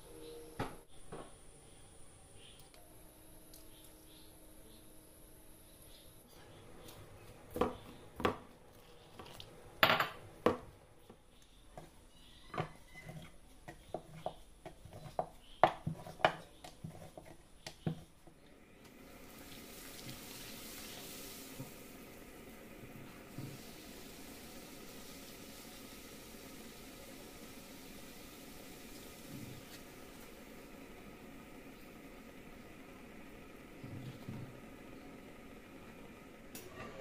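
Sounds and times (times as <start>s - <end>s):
kitchenware knocks and clinks: 9.8s - 10.7s
rolling pin rolling dough: 11.0s - 18.4s
dough deep-frying in oil: 11.7s - 36.7s.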